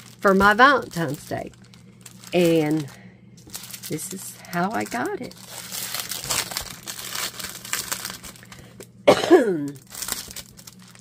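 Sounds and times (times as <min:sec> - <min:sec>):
plastic bag crinkling: 0:00.0 - 0:09.0, 0:09.6 - 0:11.0.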